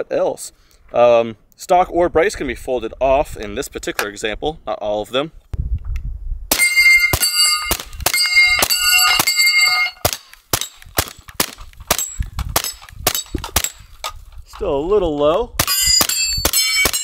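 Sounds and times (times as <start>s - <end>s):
steel targets ringing: 6.5s - 10.7s, 15.6s - 17.0s
suppressed gunshots: 10.0s - 13.9s.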